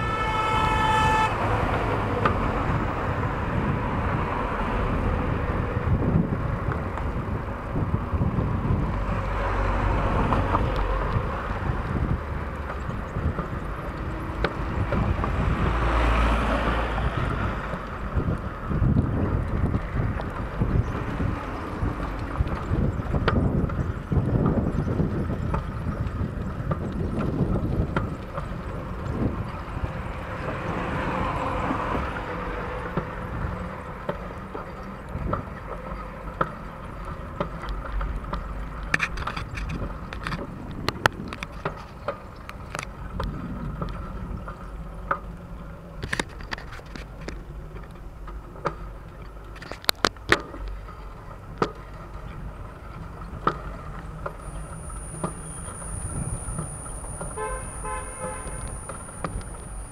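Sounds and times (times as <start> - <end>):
tyre and wind rumble: 0.0 - 59.9
bicycle rattling on rough concrete: 17.1 - 31.0, 31.9 - 59.9.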